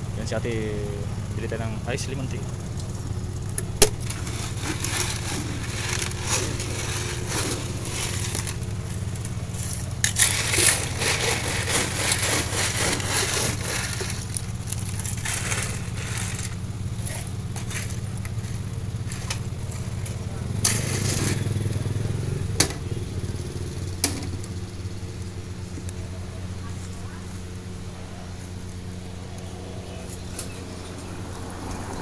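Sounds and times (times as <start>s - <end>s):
steady low hum: 0.0s - 32.0s
ice cubes clattering in plastic: 4.0s - 18.3s.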